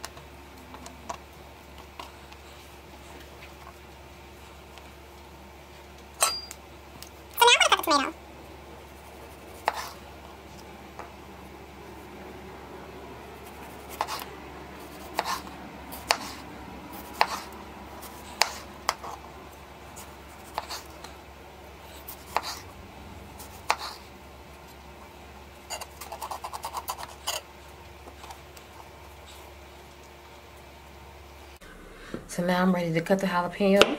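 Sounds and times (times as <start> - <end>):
knife slicing a tomato: 9.0 - 10.0, 13.4 - 16.4, 17.0 - 19.2, 22.0 - 22.6, 23.4 - 24.0.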